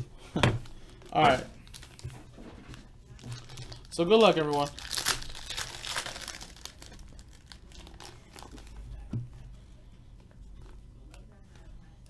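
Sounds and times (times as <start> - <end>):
foil wrapper tearing and crinkling: 1.0 - 2.0, 3.2 - 8.8.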